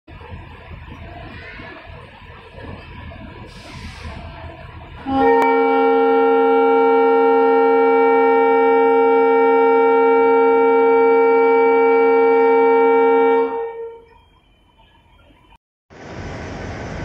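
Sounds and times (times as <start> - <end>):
locomotive air horn blast: 5.0 - 14.1.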